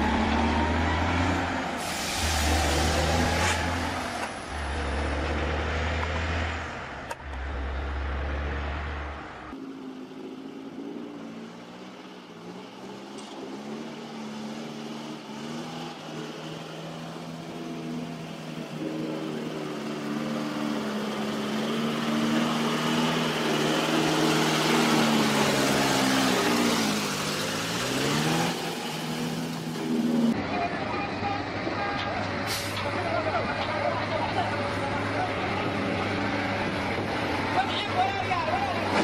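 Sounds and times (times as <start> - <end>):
mud and water splashing: 20.9 - 30.3.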